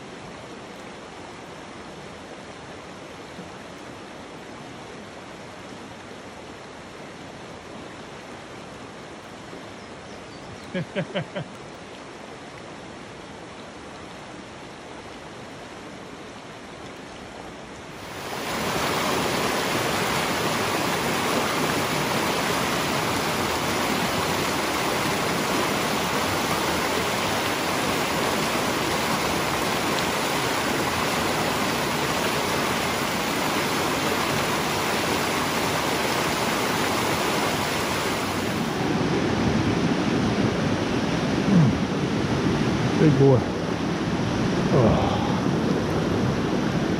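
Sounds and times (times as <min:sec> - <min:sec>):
river rushing over rocks: 0:11.1 - 0:46.9.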